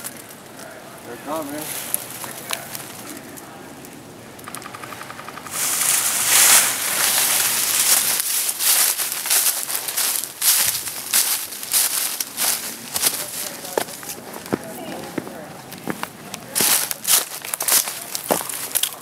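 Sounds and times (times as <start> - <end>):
footsteps crunching through dry leaves: 1.1 - 3.1, 5.5 - 19.0
fast rattle of ticks: 4.4 - 10.1.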